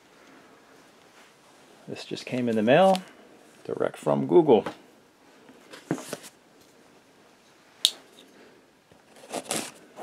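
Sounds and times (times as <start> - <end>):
blade scraping packing tape: 9.1 - 9.8.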